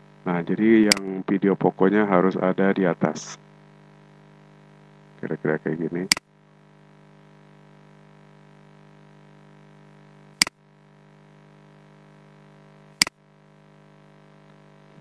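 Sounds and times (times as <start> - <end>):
electrical hum: 0.0 - 15.0.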